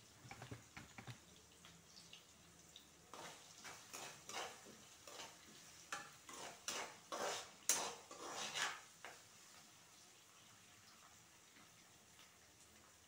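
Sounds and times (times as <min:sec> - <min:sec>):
metal ladle scraping a pan: 0:03.1 - 0:08.9.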